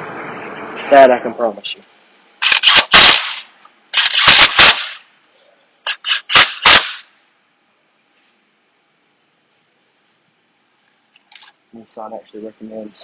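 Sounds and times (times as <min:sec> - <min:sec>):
power tool rattling bursts: 0:02.4 - 0:05.0, 0:05.9 - 0:07.0.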